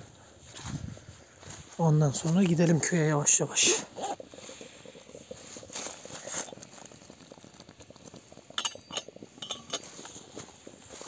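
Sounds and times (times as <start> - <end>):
wood fire crackling: 0.0 - 11.0.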